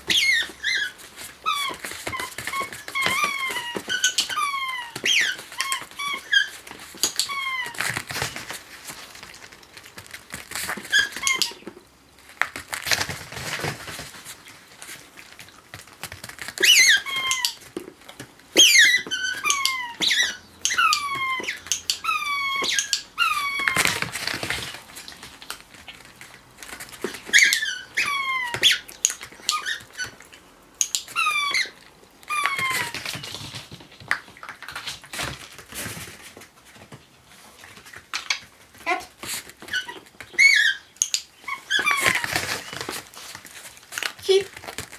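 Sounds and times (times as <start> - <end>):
rubber squeaky toy squeaking: 0.0 - 8.5, 10.6 - 11.7, 16.5 - 17.7, 18.5 - 24.5, 27.0 - 30.2, 31.0 - 33.3, 38.8 - 43.0.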